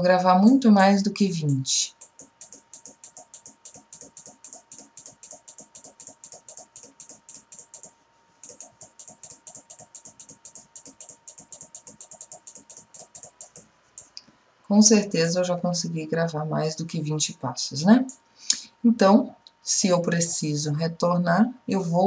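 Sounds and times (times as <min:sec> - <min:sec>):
rapid mouse clicking: 0:01.5 - 0:14.2.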